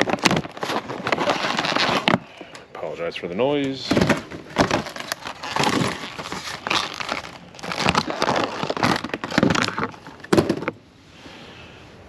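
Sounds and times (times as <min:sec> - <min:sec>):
packaging crinkling and tearing: 0:00.0 - 0:02.6, 0:03.9 - 0:10.8.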